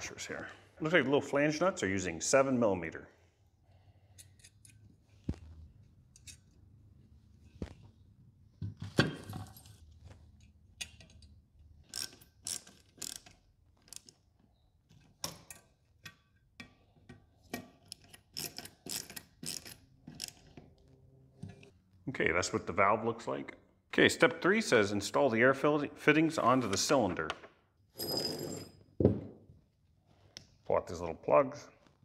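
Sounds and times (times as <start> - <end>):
ratcheting screwdriver clicking: 11.9 - 14.2.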